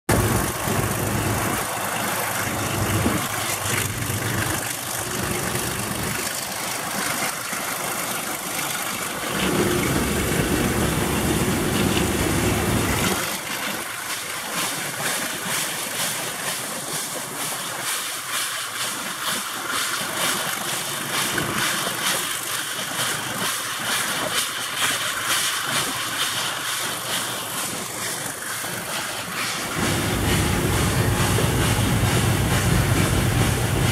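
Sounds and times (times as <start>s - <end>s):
deep diesel rumble: 0.1s - 6.2s, 9.0s - 13.2s, 29.6s - 33.9s
train engine and running noise: 0.1s - 33.9s.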